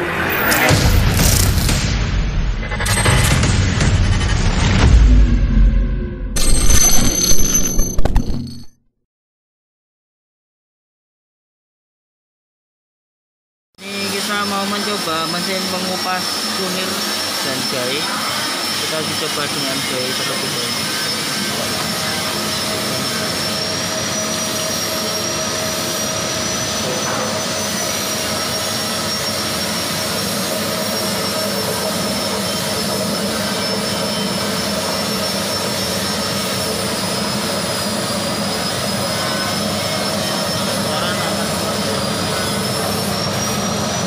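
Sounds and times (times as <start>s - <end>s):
machine whining and humming: 0.0s - 8.7s, 13.8s - 44.0s.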